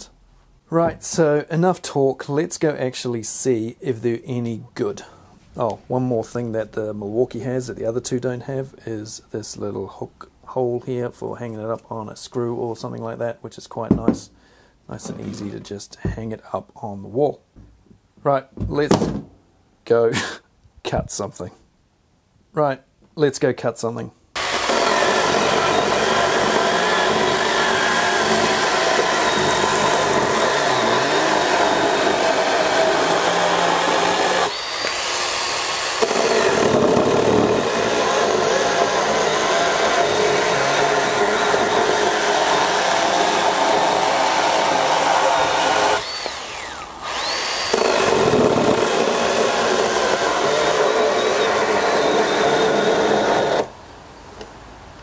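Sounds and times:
battery saw cutting wood: 24.4s - 53.7s.

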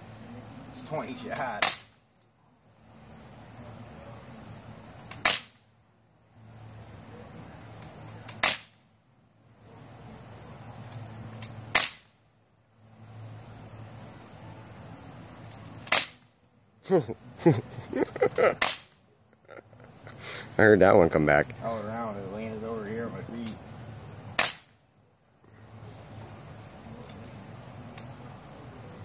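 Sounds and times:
pistol shots snapping: 1.3s - 2.0s, 5.1s - 5.6s, 8.2s - 8.8s, 11.4s - 12.2s, 15.8s - 16.2s, 18.6s - 19.0s, 24.4s - 24.8s.

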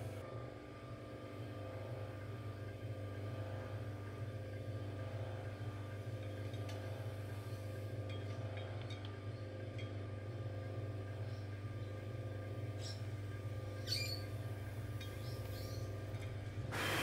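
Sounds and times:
potter's wheel motor humming: 0.0s - 17.0s.

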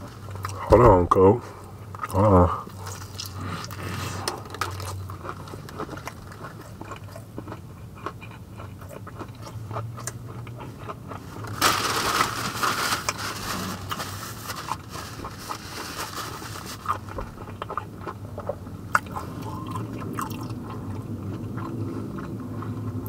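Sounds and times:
person chewing crispy chicken: 1.7s - 23.0s
rustling: 11.4s - 17.4s.

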